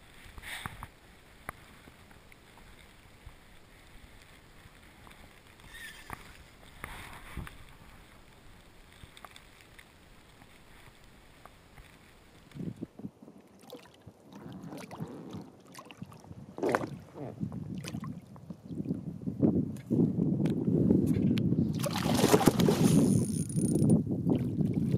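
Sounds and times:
fish splashing in water: 0:21.8 - 0:23.1.

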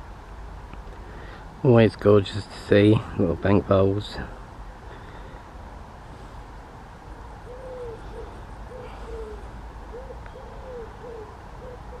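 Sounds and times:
bird hooting: 0:07.4 - 0:12.0.

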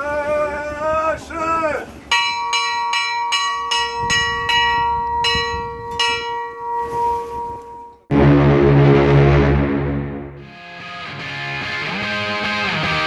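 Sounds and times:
music: 0:08.1 - 0:13.0.

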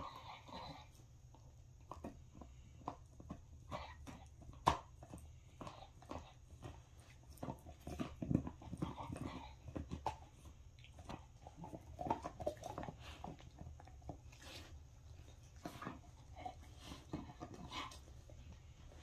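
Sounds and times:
dog chewing a chew toy: 0:00.0 - 0:19.0
dog snuffling: 0:05.4 - 0:19.0.

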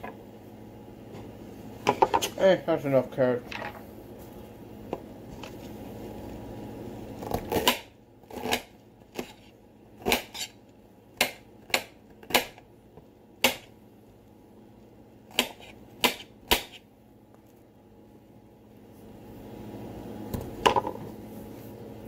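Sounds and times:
knife chopping on cutting board: 0:15.3 - 0:16.8.

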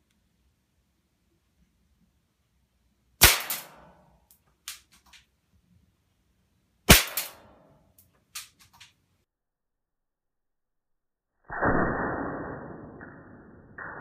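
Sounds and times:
air gun cracks: 0:03.2 - 0:03.9, 0:06.9 - 0:07.5.

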